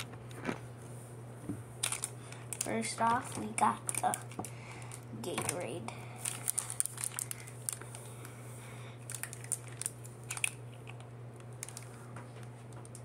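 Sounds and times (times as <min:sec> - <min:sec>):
plastic bottle crinkling: 0:01.8 - 0:05.6, 0:06.2 - 0:08.3, 0:09.0 - 0:13.0.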